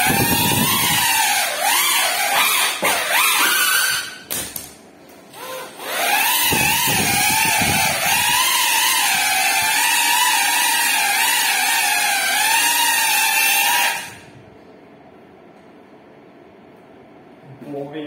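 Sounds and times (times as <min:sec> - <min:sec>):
drone motors whining: 0:00.0 - 0:04.2, 0:05.4 - 0:14.4.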